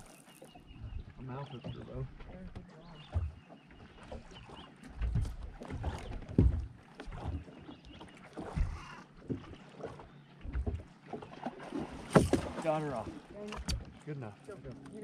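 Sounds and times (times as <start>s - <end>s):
thumps and knocks on boat deck: 5.0s - 7.5s, 12.1s - 12.6s.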